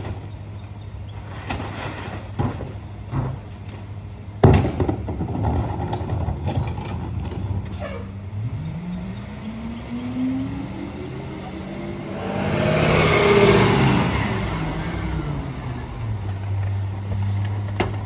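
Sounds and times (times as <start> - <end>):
engine revving up: 8.3 - 15.8.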